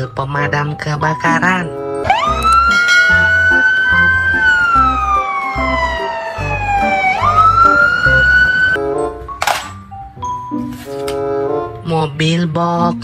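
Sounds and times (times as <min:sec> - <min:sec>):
background music with low beat: 0:01.1 - 0:11.9
fire engine siren wailing: 0:02.0 - 0:08.8.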